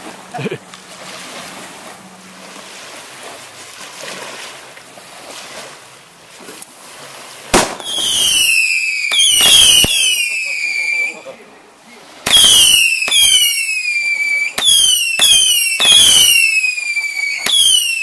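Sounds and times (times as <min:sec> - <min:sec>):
small waves lapping: 0:00.0 - 0:18.0
sharp bang: 0:07.5 - 0:07.9
whistles falling in pitch: 0:07.8 - 0:11.3, 0:12.3 - 0:18.0.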